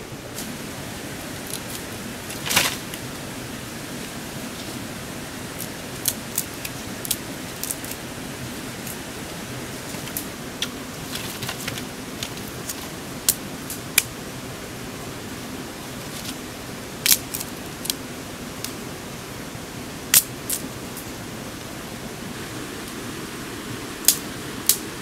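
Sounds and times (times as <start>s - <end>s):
background hiss: 0.0s - 25.0s
twigs snapping: 1.4s - 3.0s, 5.6s - 8.0s, 17.0s - 18.0s, 20.1s - 21.1s.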